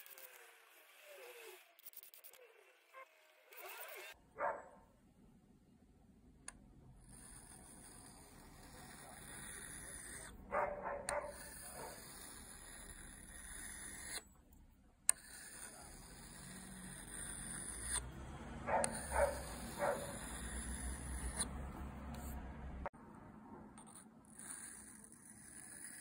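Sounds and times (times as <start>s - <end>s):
dog barking: 4.4s - 4.8s, 10.5s - 12.1s, 18.6s - 20.3s.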